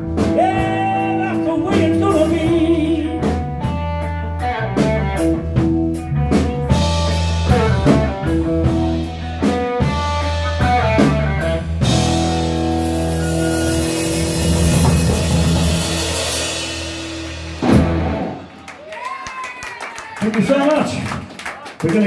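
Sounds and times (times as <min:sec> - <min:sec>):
blues rock band playing: 0:00.0 - 0:19.4
blues harmonica: 0:06.8 - 0:15.8.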